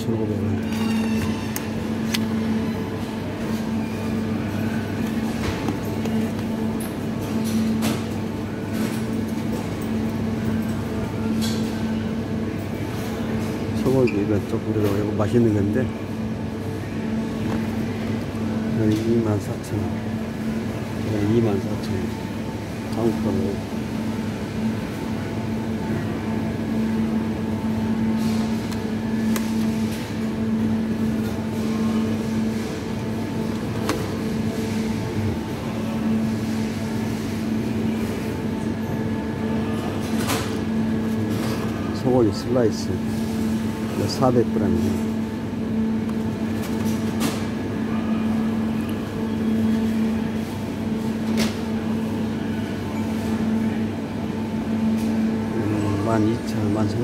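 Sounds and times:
refrigeration machine hum: 0:00.0 - 0:57.0.

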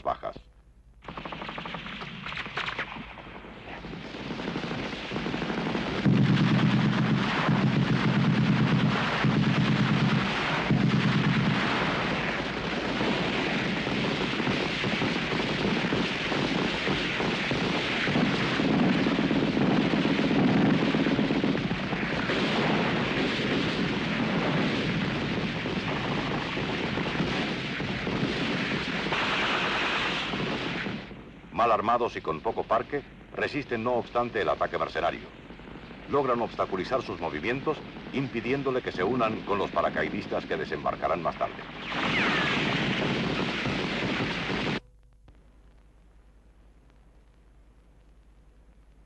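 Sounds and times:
machine-gun bursts: 0:01.0 - 0:03.0
rifle shots crackling: 0:01.0 - 0:19.4, 0:20.0 - 0:31.1.

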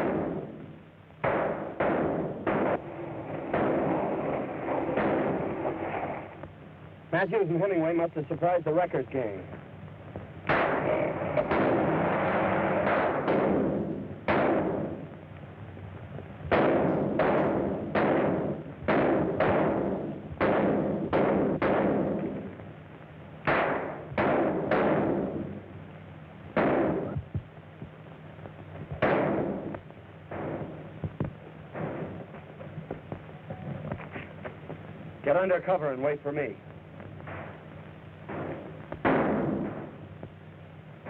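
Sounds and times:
gunshots echoing: 0:00.0 - 0:06.3, 0:10.4 - 0:15.1, 0:16.5 - 0:22.5, 0:23.4 - 0:25.6, 0:26.5 - 0:27.2, 0:29.0 - 0:30.9, 0:31.7 - 0:32.3, 0:37.2 - 0:40.2
steady low hum: 0:00.0 - 0:41.0.

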